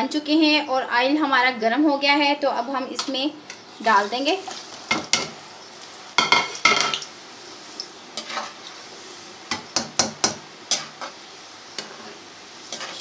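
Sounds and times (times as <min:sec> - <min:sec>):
oil sizzling: 0:02.7 - 0:13.0
metal spoon scraping pot: 0:11.8 - 0:13.0.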